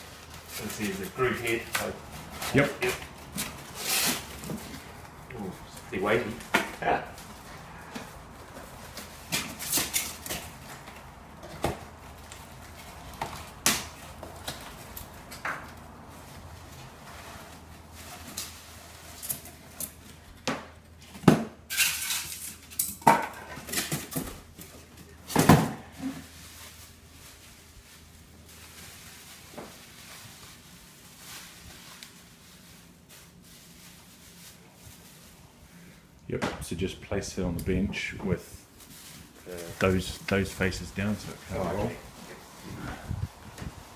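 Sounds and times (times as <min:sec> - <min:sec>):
packing material rustling: 0:00.0 - 0:20.1, 0:26.1 - 0:35.9.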